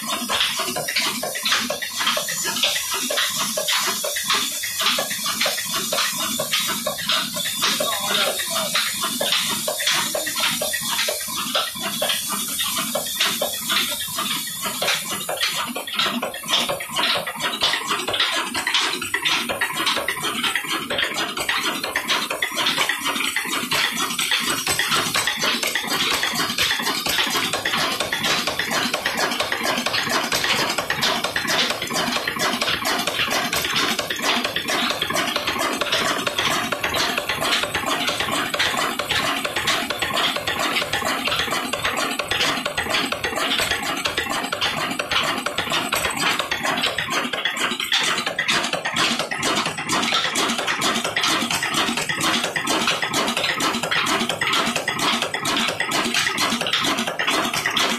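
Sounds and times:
diesel engine ticking: 13.4 - 57.9.

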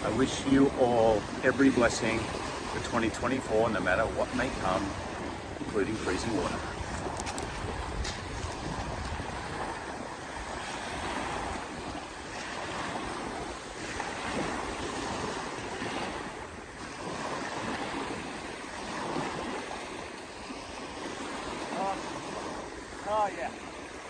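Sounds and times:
waves washing on pebble beach: 0.0 - 24.0
wind on microphone: 4.4 - 23.5.

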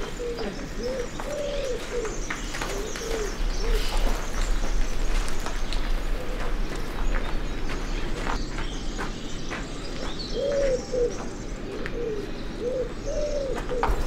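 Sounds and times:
dove cooing: 0.0 - 5.2, 10.3 - 14.0
faint footsteps: 0.0 - 12.1.

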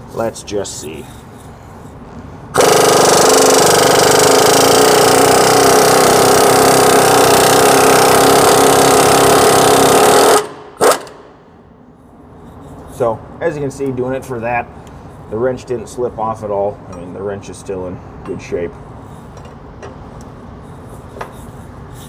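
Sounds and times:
air impact wrench hammering: 2.5 - 11.4.

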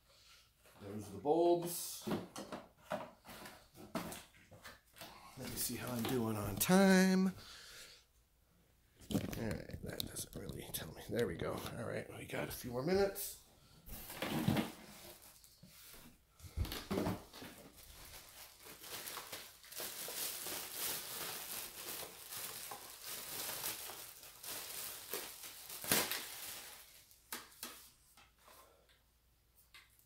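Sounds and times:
packaging rustling and crinkling: 5.4 - 7.0, 13.9 - 15.9, 16.6 - 27.9.

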